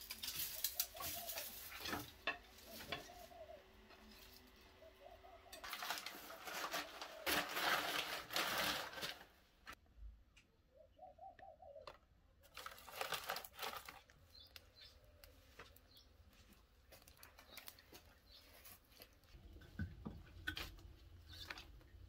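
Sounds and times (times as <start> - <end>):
dry sticks rustling and clattering: 0.0 - 4.8, 5.5 - 9.8, 12.5 - 22.0
dove cooing: 0.4 - 8.1, 10.8 - 12.0.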